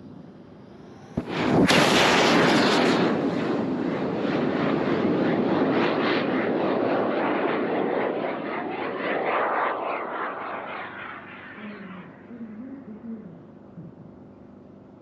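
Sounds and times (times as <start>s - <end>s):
rocket motor crackling roar: 0.6s - 12.4s.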